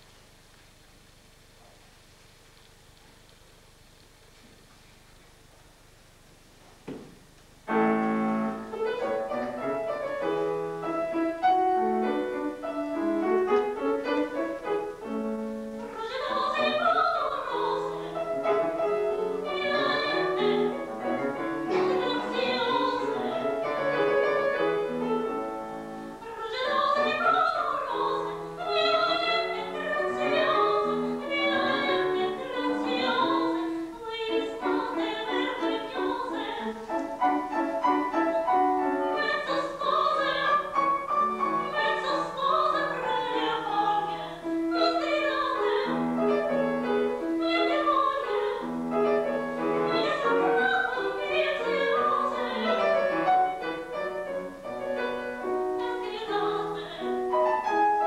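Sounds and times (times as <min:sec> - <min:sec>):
grand piano: 0:00.0 - 0:58.0
woman singing operatically: 0:15.8 - 0:25.0, 0:26.2 - 0:54.0, 0:55.0 - 0:57.8.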